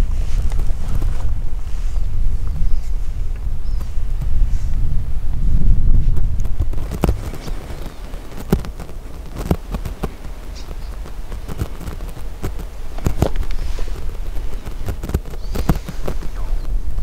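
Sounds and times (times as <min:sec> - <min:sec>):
wind rumble on microphone: 0:00.0 - 0:17.0
sharp clicks and light taps: 0:06.2 - 0:16.8.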